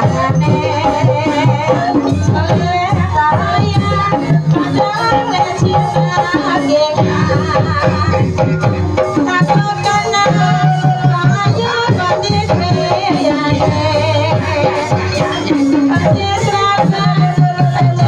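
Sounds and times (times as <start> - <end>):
hand drums beating: 0.0 - 18.0.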